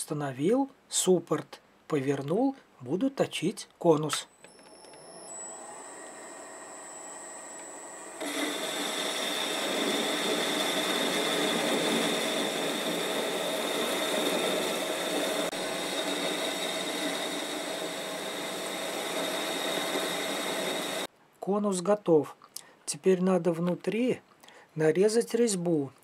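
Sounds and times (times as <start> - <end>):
high-pitched lathe whine: 4.4 - 21.1
lathe cutting metal: 5.3 - 21.1.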